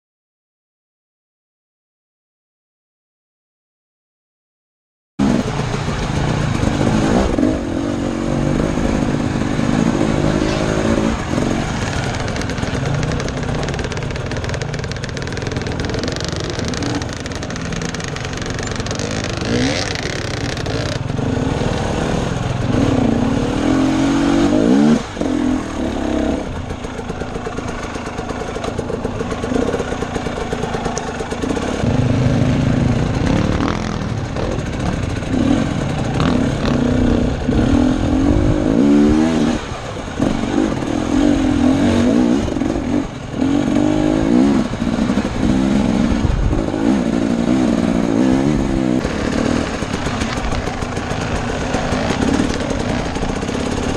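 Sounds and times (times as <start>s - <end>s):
dirt bike engine revving: 5.2s - 53.9s.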